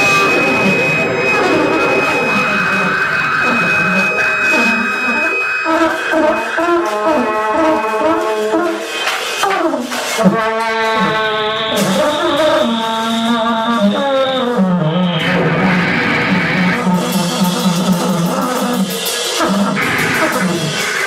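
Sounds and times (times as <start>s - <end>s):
steady high tone: 0.0s - 14.0s
experimental noise music: 0.0s - 21.0s.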